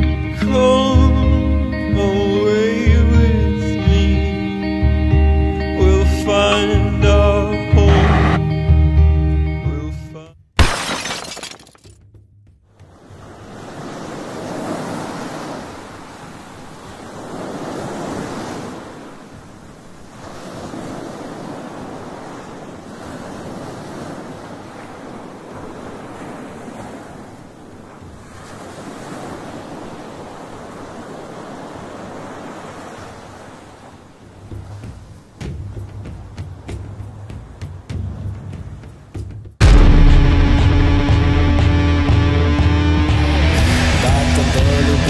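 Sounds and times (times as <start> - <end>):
waves breaking on shore: 6.2 - 8.4, 12.8 - 45.0.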